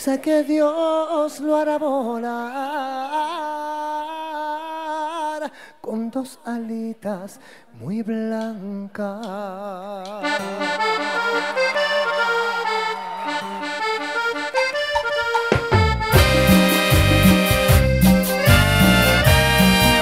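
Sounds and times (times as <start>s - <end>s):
accordion melody: 10.2s - 20.0s
band playing with bass: 10.3s - 20.0s.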